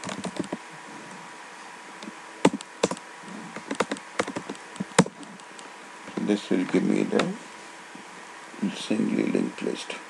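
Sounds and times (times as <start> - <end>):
computer keyboard typing: 0.0 - 0.6, 2.5 - 3.0, 3.6 - 5.2.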